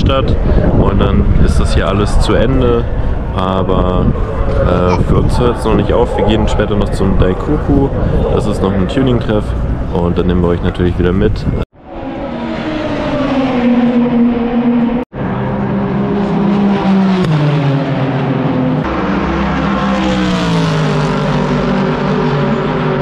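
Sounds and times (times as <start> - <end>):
race cars driving past: 11.8 - 23.0.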